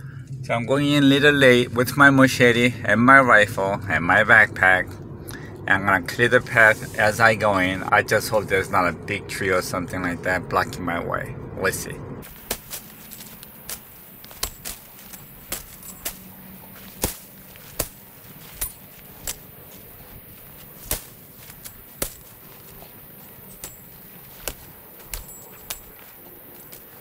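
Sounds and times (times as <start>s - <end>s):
branches cracking and snapping: 12.2s - 27.0s.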